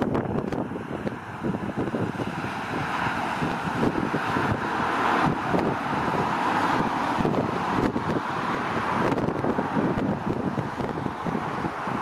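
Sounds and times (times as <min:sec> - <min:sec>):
distant turboprop aircraft rushing: 0:00.0 - 0:12.0
wind buffeting microphone: 0:00.0 - 0:12.0.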